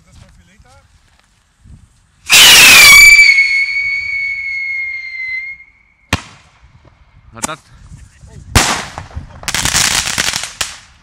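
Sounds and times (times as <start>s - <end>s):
rocket high whistle: 2.3s - 6.1s.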